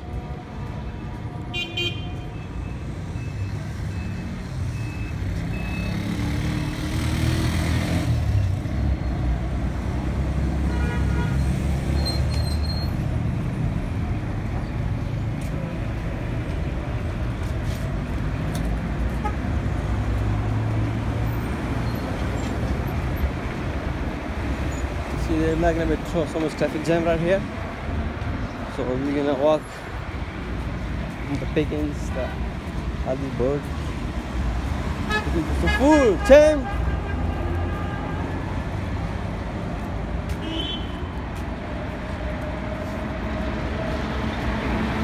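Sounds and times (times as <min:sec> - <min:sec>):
low rumble of traffic engines: 0:00.0 - 0:45.0
car horn beeps: 0:01.5 - 0:04.2, 0:40.4 - 0:41.0.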